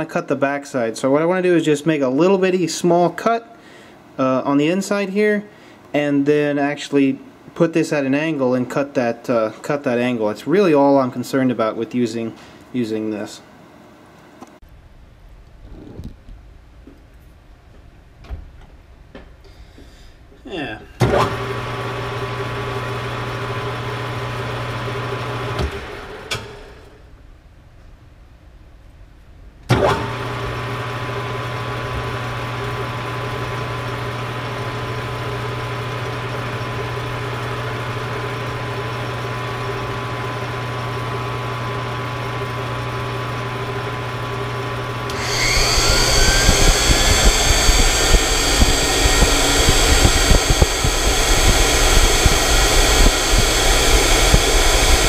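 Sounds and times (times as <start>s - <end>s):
lathe and grinder humming: 30.2s - 55.0s
grinding wheel hissing on metal: 45.1s - 55.0s.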